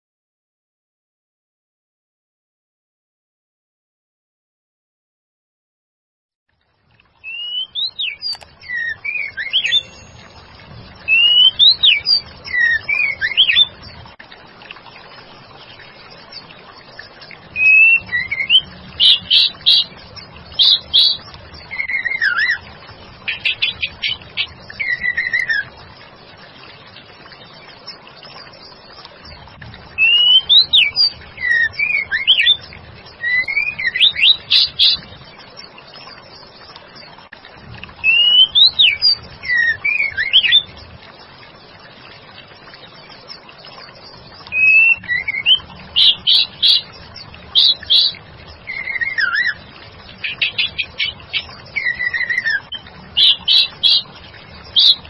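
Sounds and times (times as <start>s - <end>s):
bird singing whistled notes: 7.2s - 13.8s, 17.6s - 19.9s, 20.6s - 22.6s, 30.0s - 32.6s, 33.2s - 35.0s, 38.0s - 40.7s, 44.5s - 46.9s, 47.6s - 49.6s, 50.2s - 54.0s.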